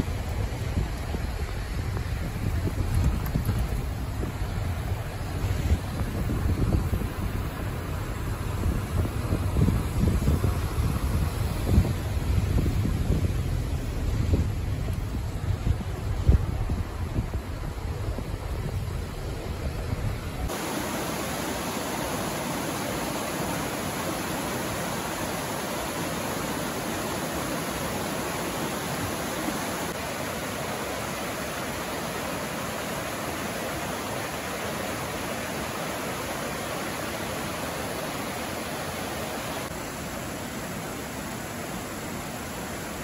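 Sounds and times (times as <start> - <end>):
stream rushing over rocks: 0.0 - 43.0
car driving rumble: 0.1 - 20.5.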